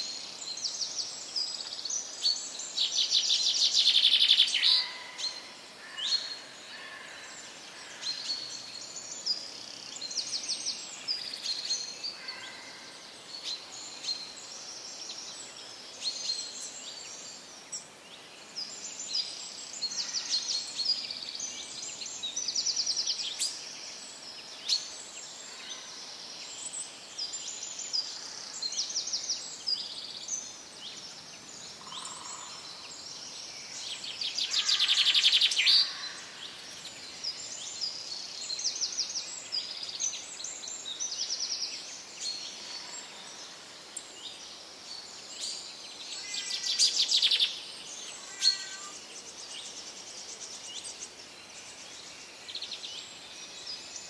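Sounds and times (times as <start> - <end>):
songbirds chirping and trilling: 0.0 - 54.0.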